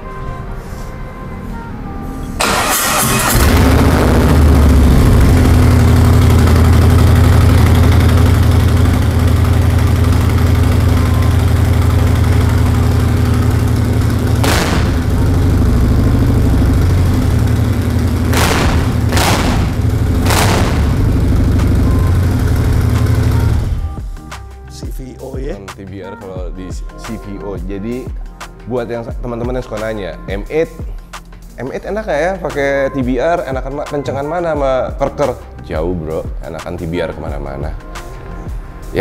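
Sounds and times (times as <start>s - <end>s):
motorcycle engine starting: 2.4s - 24.0s
motorcycle engine idling: 3.8s - 24.1s.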